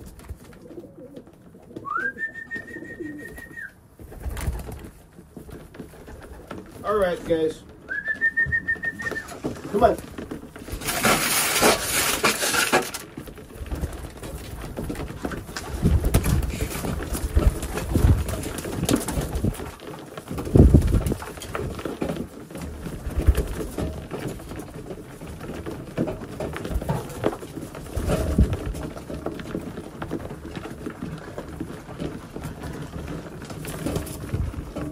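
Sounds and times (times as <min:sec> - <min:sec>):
pigeons cooing: 0:00.0 - 0:03.7, 0:07.9 - 0:09.4
wings flapping: 0:00.0 - 0:34.9.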